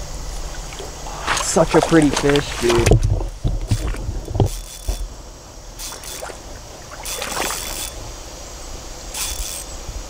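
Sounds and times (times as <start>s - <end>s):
water splashing: 0.3s - 8.1s.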